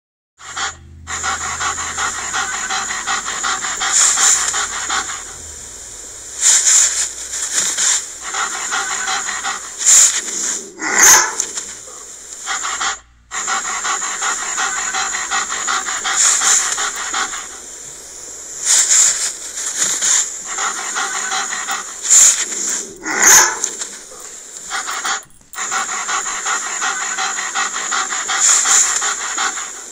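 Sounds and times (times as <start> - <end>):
dog panting: 0.4 - 29.9
dog barking: 10.8 - 11.7, 20.6 - 25.1.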